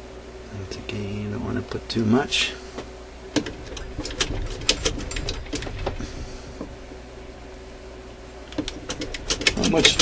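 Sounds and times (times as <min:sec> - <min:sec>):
faint steady hum: 0:00.0 - 0:10.0
clicks of metal mechanism: 0:08.5 - 0:10.0.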